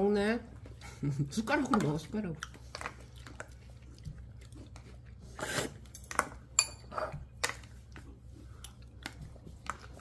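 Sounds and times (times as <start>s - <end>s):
utensils clinking against bowls: 5.9s - 7.2s.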